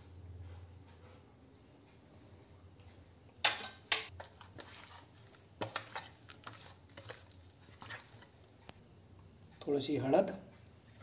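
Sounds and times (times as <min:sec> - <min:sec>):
hand mixing fish in dish: 0:04.1 - 0:08.6.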